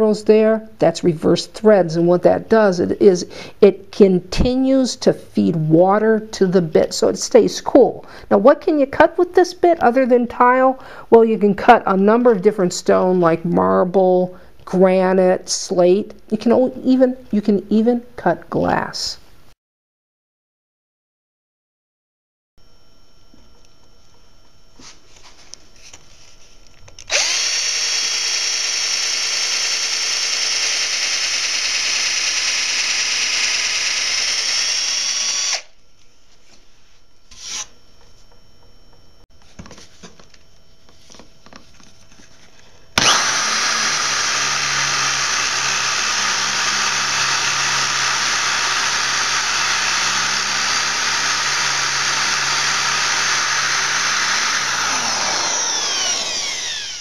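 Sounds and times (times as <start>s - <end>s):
power drill boring into wood: 27.1s - 35.8s, 43.0s - 57.0s.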